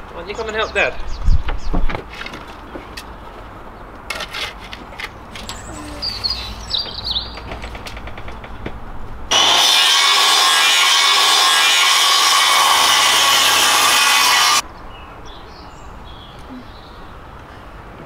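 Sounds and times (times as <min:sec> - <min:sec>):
circular saw cutting wood: 0:09.3 - 0:14.6.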